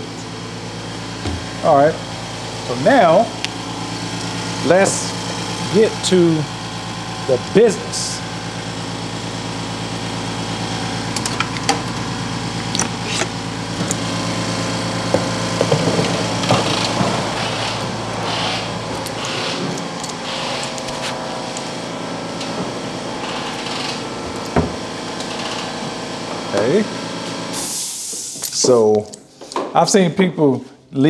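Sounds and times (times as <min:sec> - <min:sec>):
air compressor running: 0:00.0 - 0:29.8
short hissy bursts: 0:27.6 - 0:28.4.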